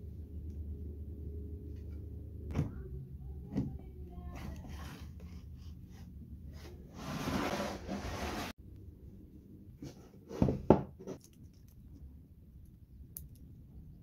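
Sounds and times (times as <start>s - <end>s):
scrape on router table: 6.6s - 8.5s.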